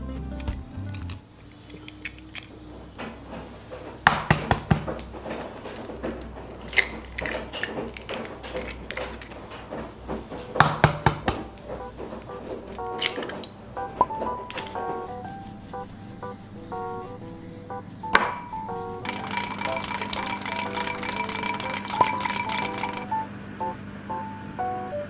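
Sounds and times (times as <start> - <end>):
dishes and utensils clinking: 5.3 - 15.0, 18.2 - 23.1.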